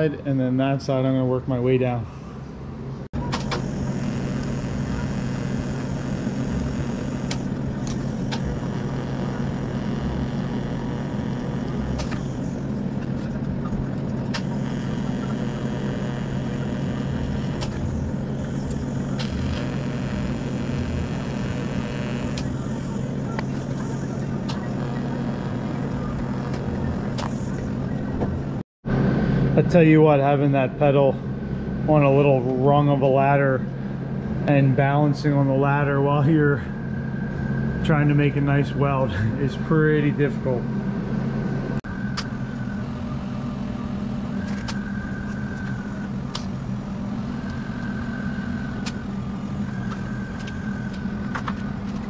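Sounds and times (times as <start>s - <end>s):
welding arc buzzing hum: 3.1s - 28.6s, 40.6s - 52.0s
sharp clicks: 6.6s - 12.3s, 18.6s - 22.6s.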